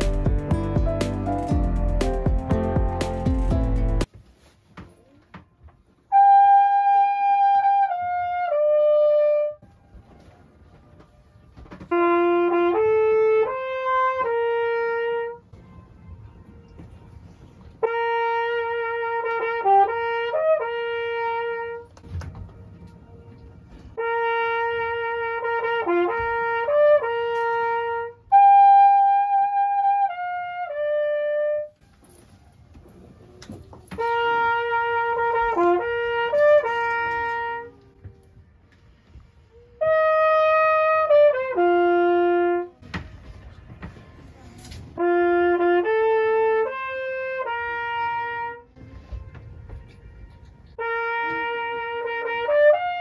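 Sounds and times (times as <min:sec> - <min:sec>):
flugelhorn playing melodic phrases: 0:06.1 - 0:09.6, 0:11.9 - 0:15.5, 0:16.7 - 0:21.9, 0:24.0 - 0:31.8, 0:34.0 - 0:37.9, 0:39.7 - 0:42.8, 0:45.0 - 0:48.8, 0:50.8 - 0:53.0.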